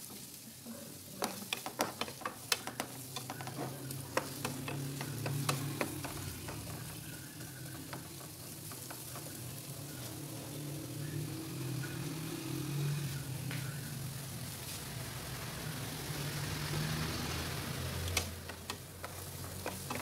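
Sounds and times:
onion and garlic sizzling in a pan: 0.0 - 20.0
wooden spatula tapping a pan: 1.1 - 10.0, 18.1 - 20.0.

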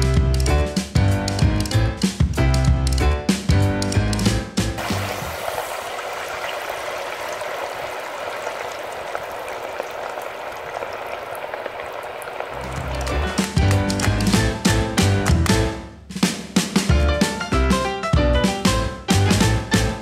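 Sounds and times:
music: 0.0 - 5.3, 12.2 - 20.0
meat sizzling in oil: 4.8 - 11.6.

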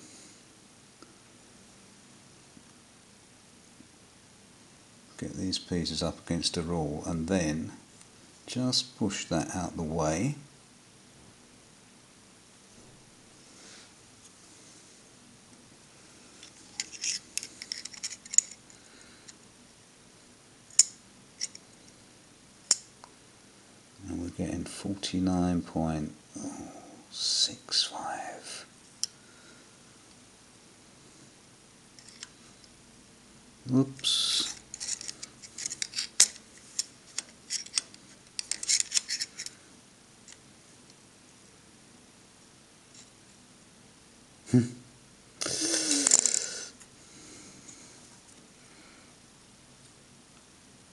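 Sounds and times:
metallic clicks and scrapes: 16.4 - 18.7, 34.4 - 39.6.

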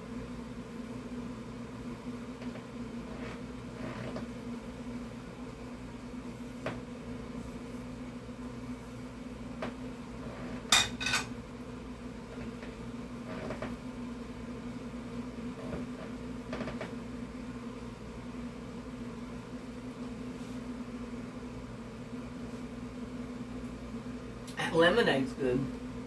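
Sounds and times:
steady low hum: 0.0 - 26.0
plate clinking on stove grate: 10.7 - 11.3.

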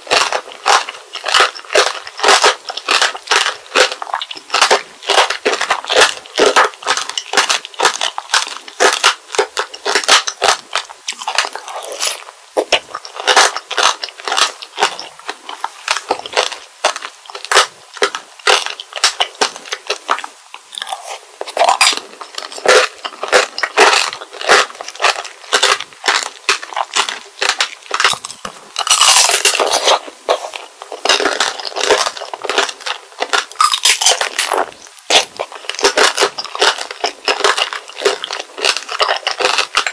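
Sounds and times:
crunching and chewing candied fruit: 0.0 - 39.9
sugar shell cracking: 31.0 - 39.9.

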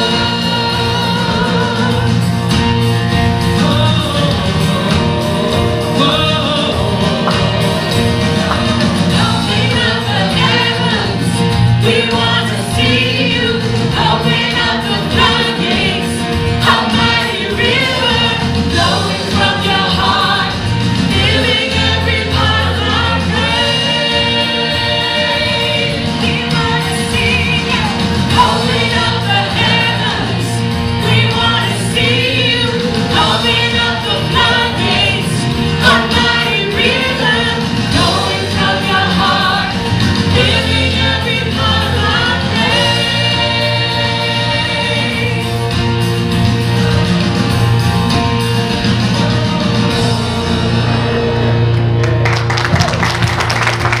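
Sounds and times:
group singing worship song: 0.0 - 52.1
held accompaniment chords: 0.0 - 54.0
applause: 51.7 - 54.0.

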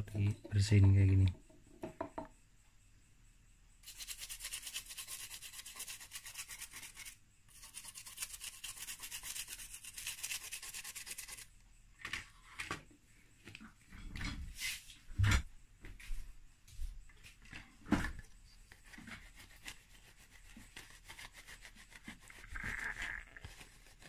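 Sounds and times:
brush scrubbing circuit board: 3.8 - 11.5.

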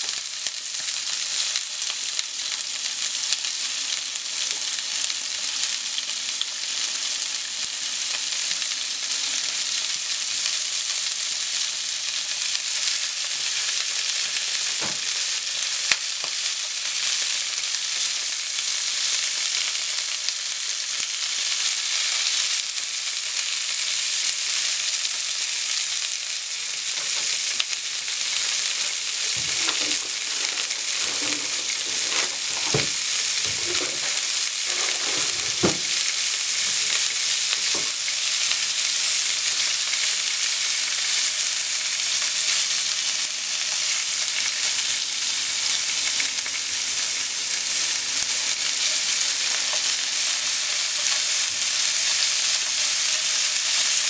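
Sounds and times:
food sizzling in a pan: 0.0 - 54.0
soft knocks: 29.3 - 34.1, 35.0 - 35.9.

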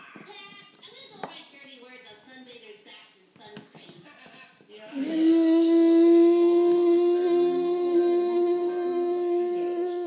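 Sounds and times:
person humming a steady note: 4.9 - 10.0.

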